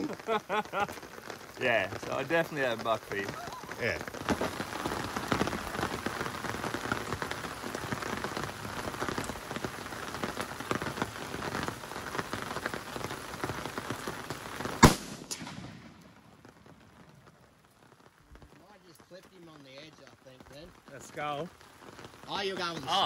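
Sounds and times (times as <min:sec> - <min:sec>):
steady rain falling: 0:00.0 - 0:23.0
rifle shot: 0:14.8 - 0:16.0.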